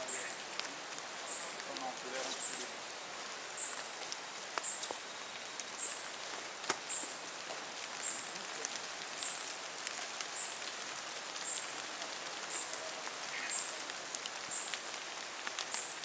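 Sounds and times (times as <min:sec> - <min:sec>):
steady hiss: 0:00.0 - 0:16.0
footsteps on leaf litter and twigs: 0:01.4 - 0:08.9.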